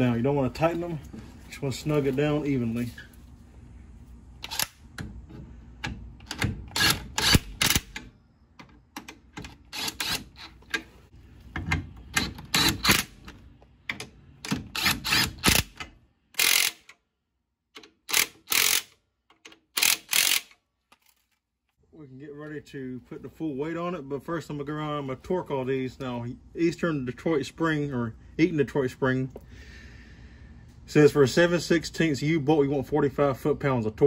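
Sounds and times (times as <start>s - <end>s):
ratchet wrench clicking: 6.2s - 8.1s, 16.4s - 17.0s, 17.8s - 20.6s.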